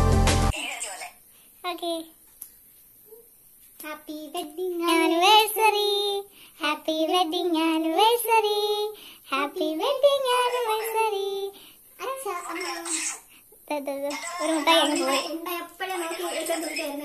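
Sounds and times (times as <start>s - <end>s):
girl singing: 3.8s - 13.0s, 13.6s - 17.0s.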